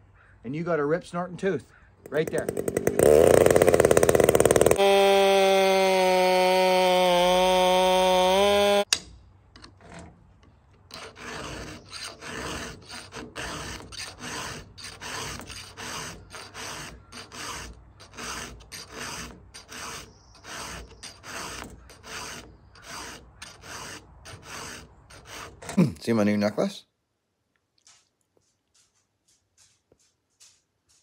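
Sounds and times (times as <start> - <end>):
chainsaw running: 2.0 - 8.9, 11.2 - 25.4
file rasping on chainsaw chain: 2.1 - 8.9, 10.9 - 25.8.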